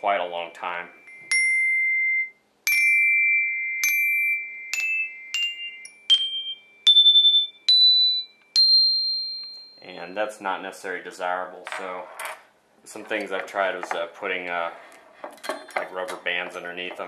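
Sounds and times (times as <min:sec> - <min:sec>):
metal xylophone notes: 0:00.9 - 0:09.9.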